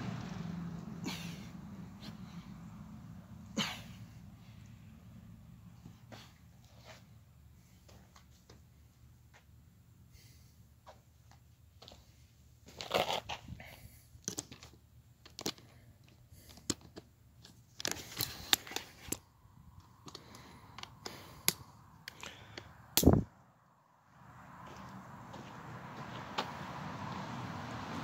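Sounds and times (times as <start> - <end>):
phone handling clicks and rustles: 14.2 - 19.2.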